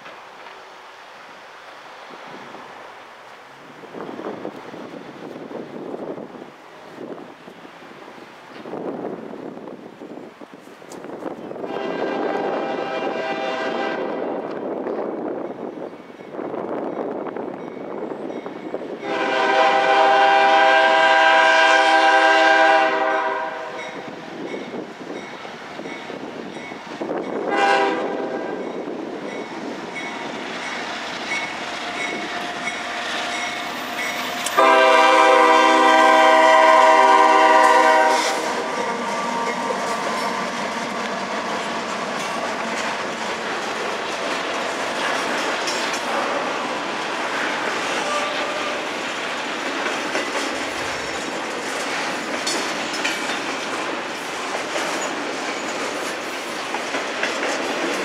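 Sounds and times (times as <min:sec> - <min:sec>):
locomotive horn blasts: 0:11.6 - 0:14.3, 0:19.0 - 0:24.0, 0:27.5 - 0:28.6, 0:34.2 - 0:40.4, 0:48.0 - 0:48.9
train wheels clattering: 0:23.8 - 0:46.7, 0:47.3 - 0:58.0
crossing bell ringing: 0:28.5 - 0:34.9.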